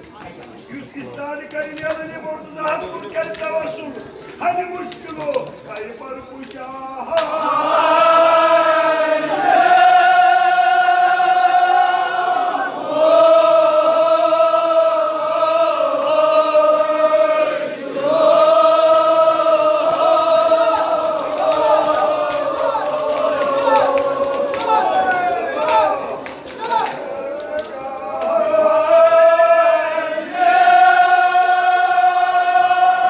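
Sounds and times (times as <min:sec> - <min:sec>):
person chanting mourning elegy: 0:18.0 - 0:33.0.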